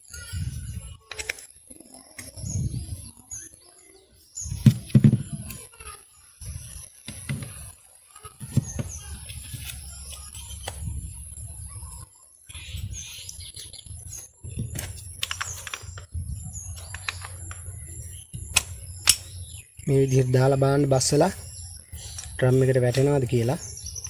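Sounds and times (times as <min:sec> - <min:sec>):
metal parts clicking and knocking: 0:14.8 - 0:16.0.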